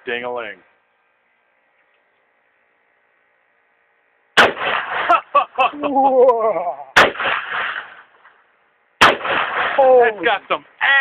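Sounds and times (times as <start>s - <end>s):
rifle shots: 4.4s - 5.2s, 7.0s - 8.1s, 9.0s - 10.1s.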